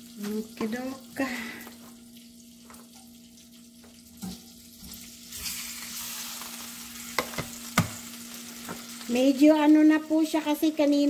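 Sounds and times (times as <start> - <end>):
meat sizzling in a frying pan: 0.0 - 11.0
wooden spoon knocking on pan: 7.2 - 8.0.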